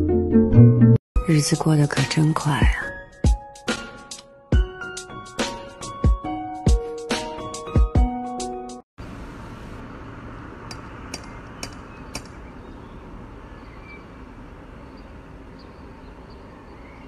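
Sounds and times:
outdoor street background: 9.0 - 17.0.

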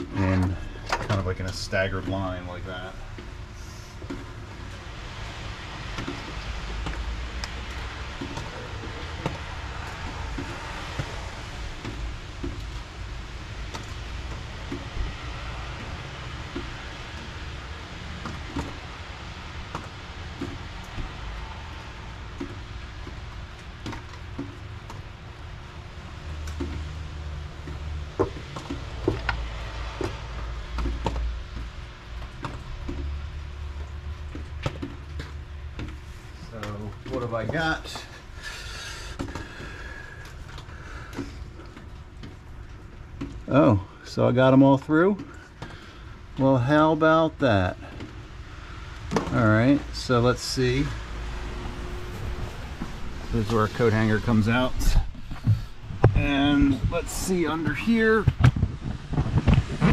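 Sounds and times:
wires rubbing clicks and rustles: 0.0 - 59.9
steady hiss: 48.4 - 58.3
low rumble: 48.4 - 59.9.

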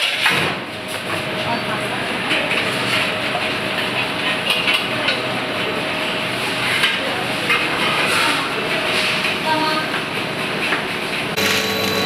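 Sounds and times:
gas burners: 11.0 - 12.0.

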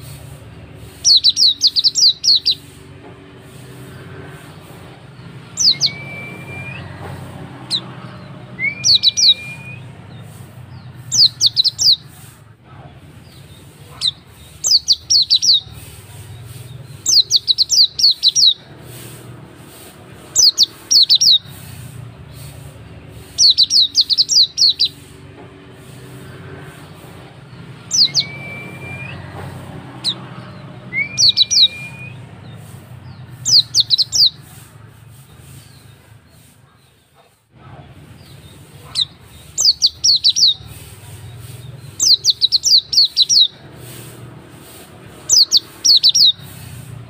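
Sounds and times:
bird chirping: 0.0 - 12.3, 13.1 - 37.1, 38.0 - 47.0
bird rising whistle: 5.6 - 6.9, 8.6 - 10.0, 28.0 - 29.2, 30.9 - 32.2.

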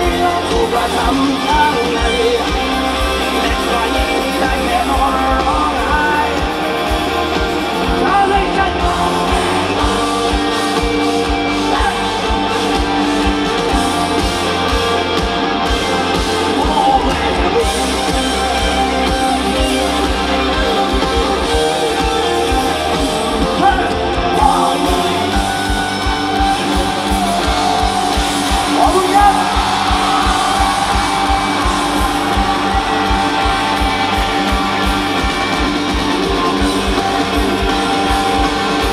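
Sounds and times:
person singing: 0.0 - 10.6, 16.4 - 18.8, 20.6 - 26.1
live rock band playing: 0.0 - 38.9.

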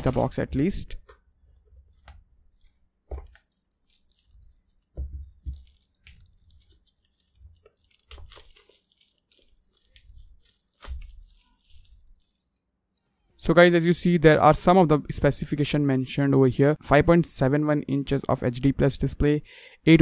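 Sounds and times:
plastic wrap crinkling and tearing: 0.0 - 0.6, 1.8 - 12.7.

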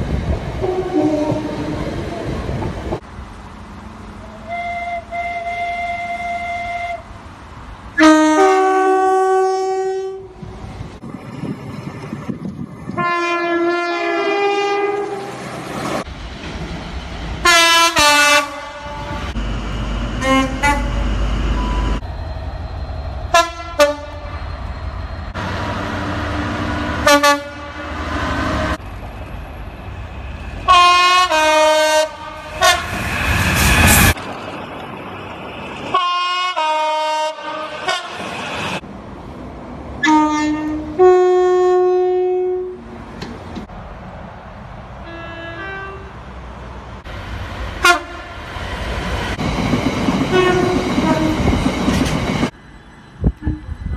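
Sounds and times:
passing train rumble: 0.0 - 53.9
two-tone train horn blasts: 0.6 - 1.8, 4.2 - 7.1, 8.0 - 10.4, 13.0 - 15.3, 17.4 - 19.4, 20.2 - 21.7, 23.3 - 24.4, 27.0 - 28.1, 30.7 - 33.0, 35.9 - 38.2, 40.0 - 42.9, 45.0 - 46.1, 47.8 - 48.4, 50.3 - 51.5, 53.4 - 53.8.

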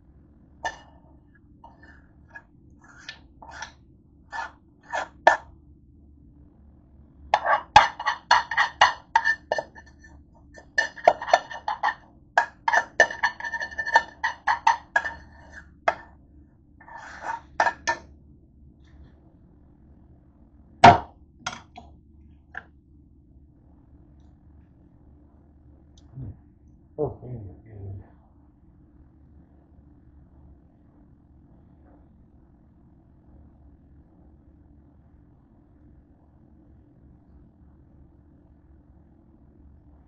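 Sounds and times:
metal utensil scraping saucepan: 0.6 - 0.9, 2.9 - 3.7, 4.3 - 5.4, 7.4 - 16.1, 16.8 - 18.0, 20.8 - 21.8.

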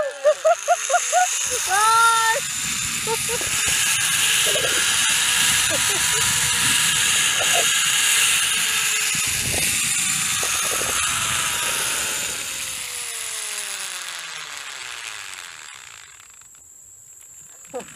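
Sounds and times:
zipline pulleys whirring on cable: 0.0 - 17.9.

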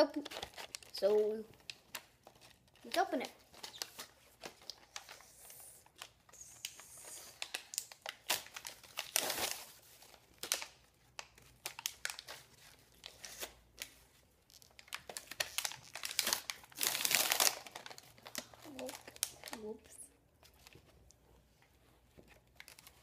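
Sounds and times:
packaging ripping: 0.0 - 2.9, 5.9 - 13.9, 14.5 - 19.7
packaging crinkling: 0.0 - 20.9.

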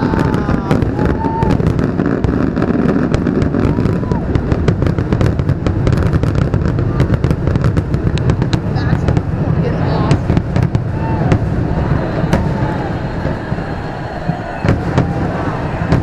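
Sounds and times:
fireworks booming and crackling: 0.0 - 16.0
low rumble: 3.1 - 16.0.

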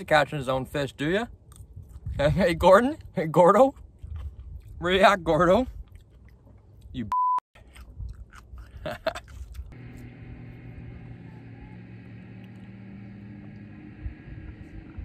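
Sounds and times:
boat motor droning: 9.8 - 15.0.

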